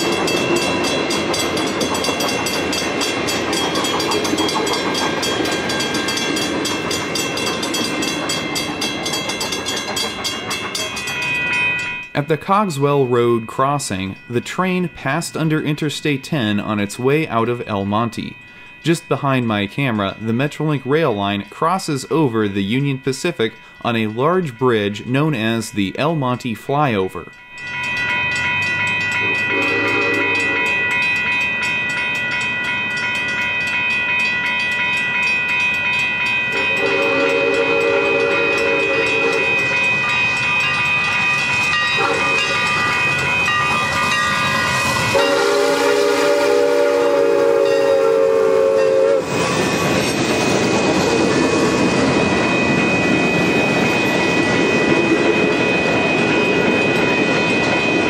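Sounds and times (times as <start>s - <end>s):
train rumbling and clattering past: 0.0s - 26.2s, 26.8s - 58.0s
steady high ringing: 0.0s - 58.0s
steam train whistle blasts: 29.2s - 30.8s, 36.5s - 39.6s, 42.0s - 42.5s, 45.1s - 49.4s.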